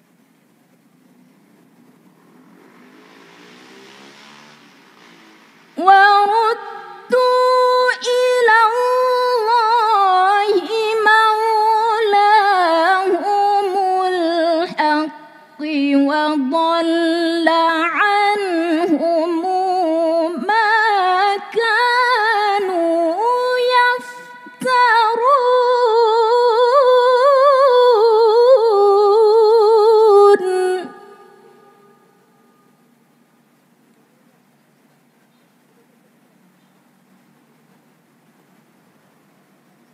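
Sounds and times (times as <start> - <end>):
woman reciting melodically: 5.8 - 32.3.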